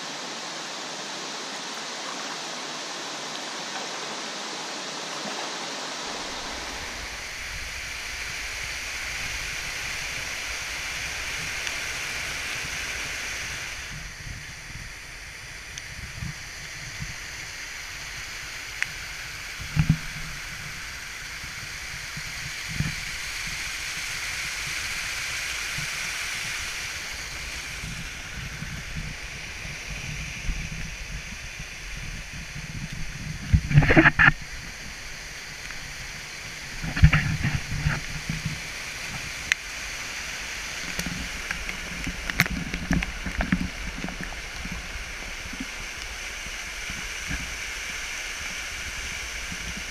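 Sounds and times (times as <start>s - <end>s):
waterfall rushing over rocks: 0.0s - 49.9s.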